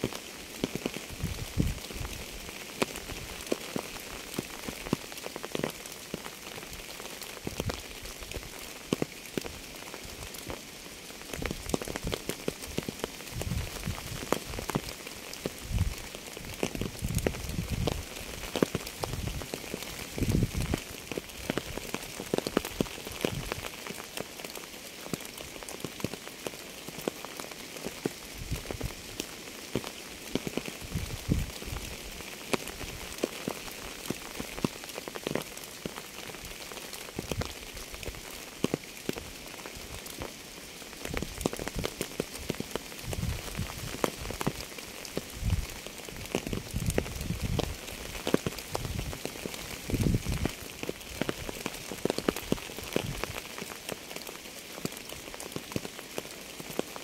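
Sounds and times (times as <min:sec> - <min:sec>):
raindrops ticking: 0:00.0 - 0:57.0
steady rain hiss: 0:00.0 - 0:57.0.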